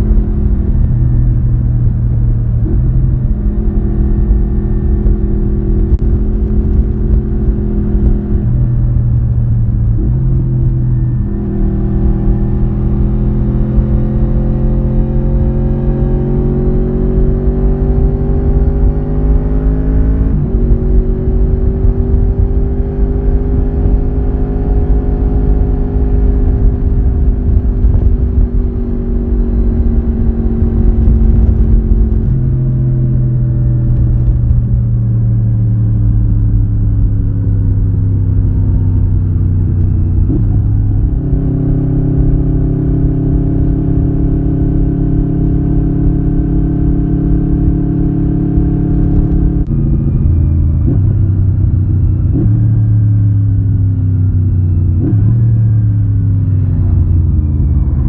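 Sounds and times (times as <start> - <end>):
motorcycle engine and exhaust: 0.0 - 58.0
wind rushing: 25.6 - 33.2.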